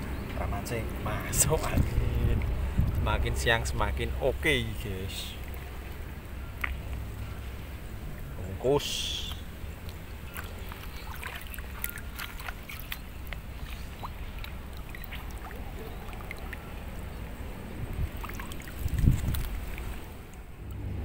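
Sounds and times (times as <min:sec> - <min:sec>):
steady low rumble: 0:00.0 - 0:11.8
water sloshing: 0:00.0 - 0:20.8
small clicks and splashes: 0:06.6 - 0:07.1, 0:09.2 - 0:20.9.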